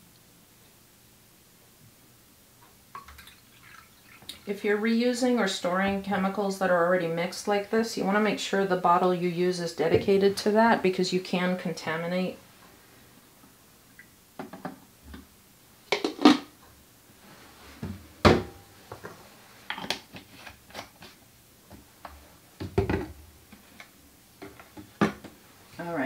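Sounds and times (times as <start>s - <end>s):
plastic bottles knocking on counter: 22.6s - 23.1s.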